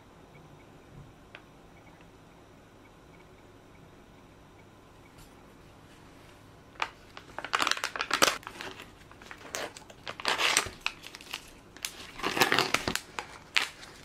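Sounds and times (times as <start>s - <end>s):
plastic film lid crinkling: 6.8s - 14.0s.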